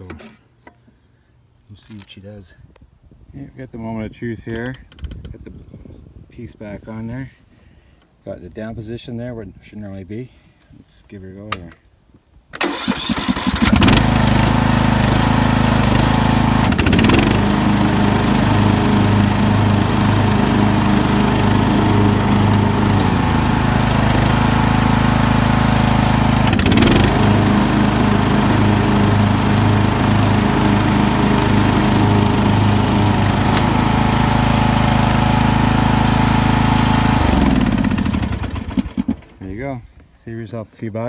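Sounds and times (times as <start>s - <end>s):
riding lawnmower engine running: 12.6s - 39.5s.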